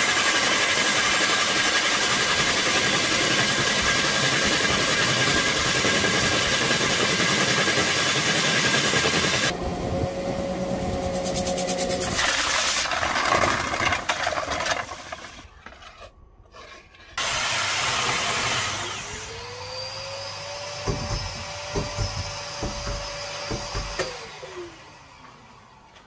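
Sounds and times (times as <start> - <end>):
core drill motor whine: 0.0 - 11.1, 17.2 - 26.0
drill grinding concrete: 0.0 - 15.6, 17.0 - 24.8
knocks: 20.8 - 24.1.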